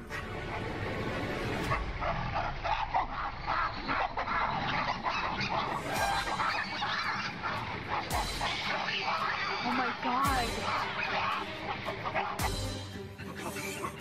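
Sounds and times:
baboons barking: 0.3s - 14.0s.

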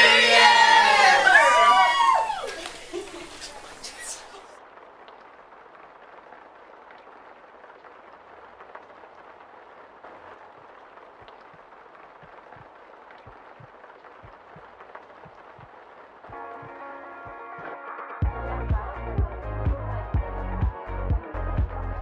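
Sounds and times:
background hiss: 0.0s - 17.5s.

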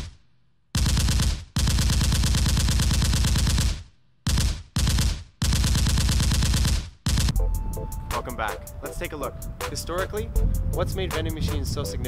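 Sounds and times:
machine-gun fire bursts: 0.8s - 7.4s.

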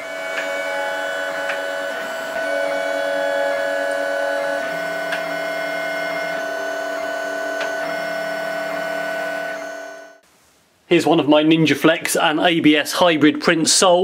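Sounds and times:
stepper motors whirring tones: 0.0s - 10.2s.

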